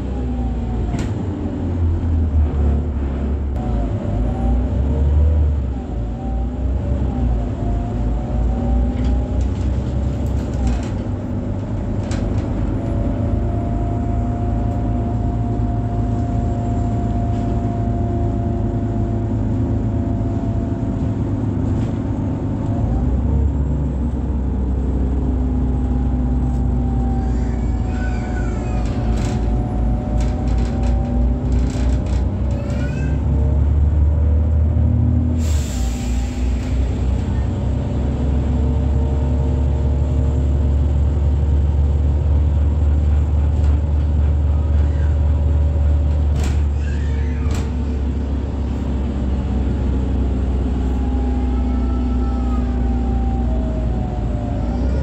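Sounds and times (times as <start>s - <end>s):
bus diesel engine rumble: 0.0s - 55.0s
squeaks and rattles: 27.0s - 33.6s, 43.2s - 48.3s.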